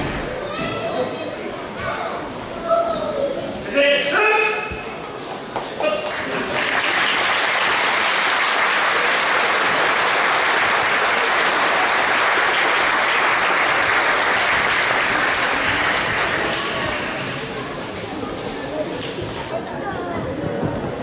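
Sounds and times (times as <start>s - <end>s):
audience applauding: 6.0s - 17.5s.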